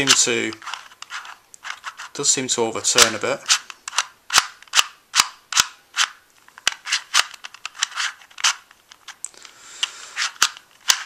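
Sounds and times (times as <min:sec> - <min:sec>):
puzzle cube layers scraping: 0:00.0 - 0:02.4, 0:05.9 - 0:08.7, 0:09.9 - 0:11.0
puzzle cube clicking: 0:03.0 - 0:11.0.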